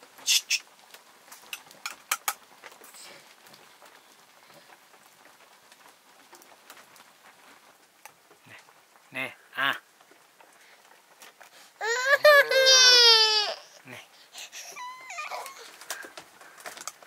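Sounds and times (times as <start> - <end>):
low background patter: 0.0 - 17.0
sharp clicks and knocks: 1.4 - 2.4.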